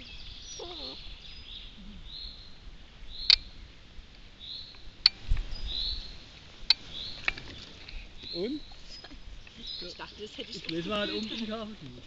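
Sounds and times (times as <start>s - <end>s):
songbird calling: 0.0s - 11.8s.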